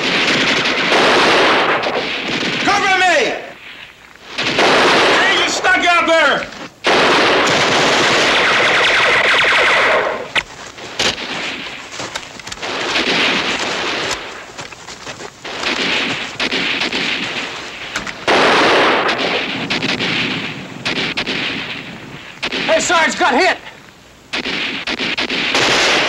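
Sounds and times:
automatic gunfire bursts: 0:00.0 - 0:03.0, 0:04.4 - 0:06.1, 0:06.8 - 0:10.4, 0:15.4 - 0:21.8, 0:24.3 - 0:26.0
single gunshots: 0:00.0 - 0:03.6, 0:04.4 - 0:10.4, 0:12.5 - 0:14.4, 0:15.4 - 0:23.1, 0:24.3 - 0:26.0.

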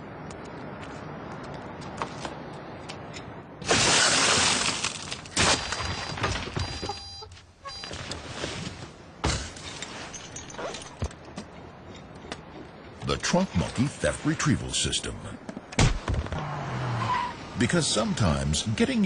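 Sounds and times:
car window glass shattering: 0:03.6 - 0:06.6.

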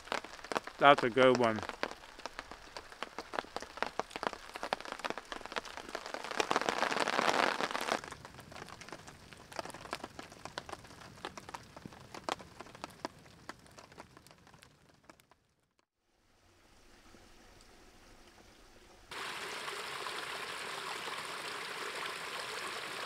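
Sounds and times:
campfire crackling and popping: 0:00.0 - 0:15.9.

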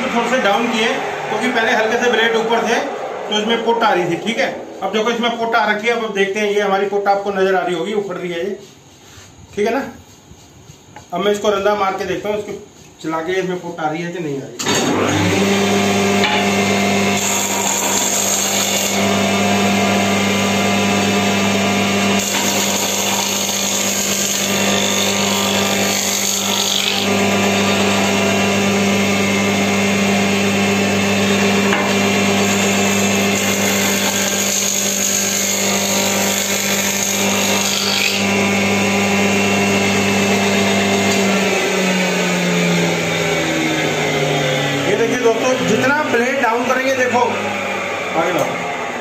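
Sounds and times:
wood fed across planer cutter: 0:00.0 - 0:06.8, 0:14.6 - 0:49.0
planer motor hum: 0:14.7 - 0:49.0.

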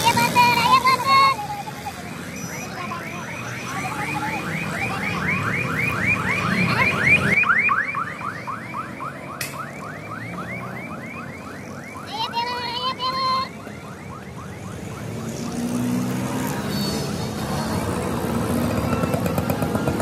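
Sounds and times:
electronic alarm whooping: 0:00.0 - 0:15.5.

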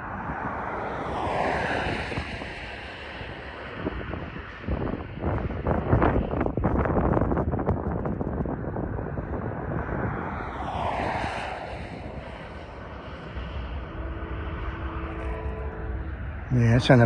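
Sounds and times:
low rumble: 0:00.0 - 0:17.0
wind: 0:00.0 - 0:17.0
distant locomotive horn: 0:13.2 - 0:17.0.

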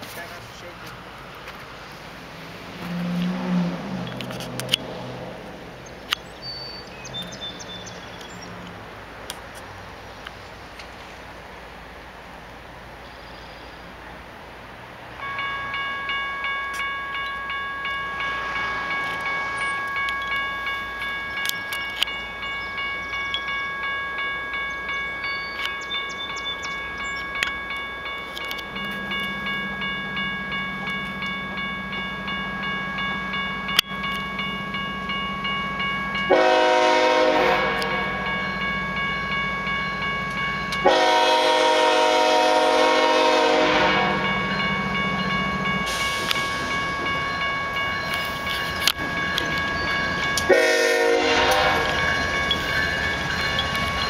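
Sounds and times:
diesel locomotive drone: 0:00.0 - 0:54.0
crossing warning bell ringing: 0:15.0 - 0:54.0
locomotive air horn: 0:36.3 - 0:38.3, 0:40.8 - 0:44.4, 0:50.5 - 0:52.0.

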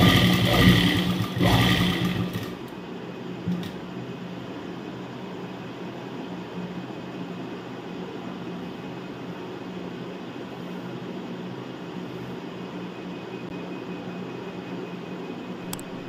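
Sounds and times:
electric sewing machine running: 0:00.0 - 0:02.8.

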